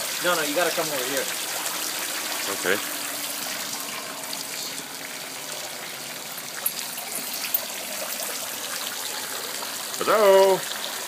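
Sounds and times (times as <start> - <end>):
fountain water splashing: 0.0 - 11.0.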